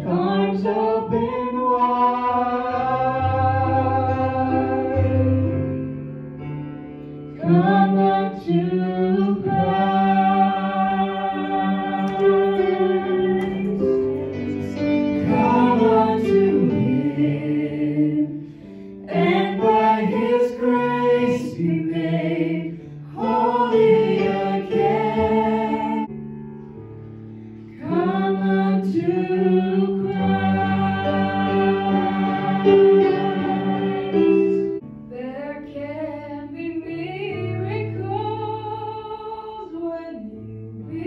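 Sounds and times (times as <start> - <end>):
group singing slow devotional song: 0.0 - 5.3, 7.4 - 26.1, 27.8 - 34.8.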